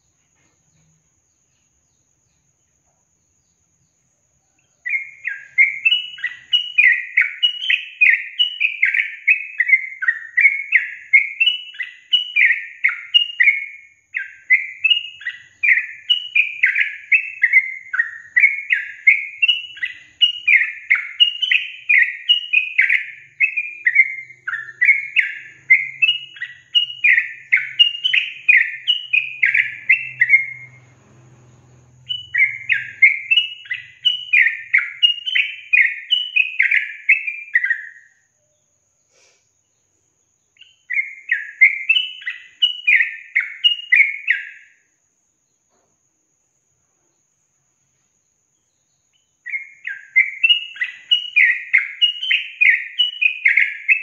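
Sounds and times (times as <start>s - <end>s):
bird chirping song: 0.0s - 54.0s.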